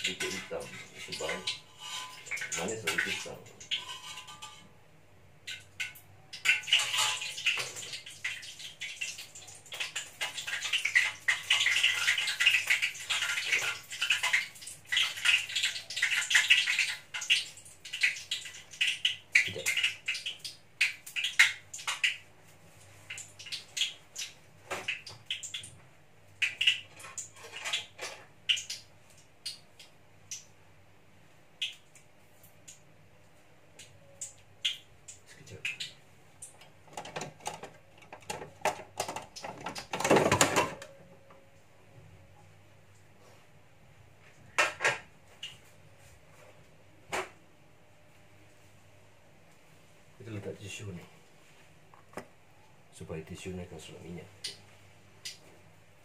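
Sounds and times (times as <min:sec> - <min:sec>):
food frying in hot oil: 0:00.0 - 0:04.5, 0:05.4 - 0:30.5.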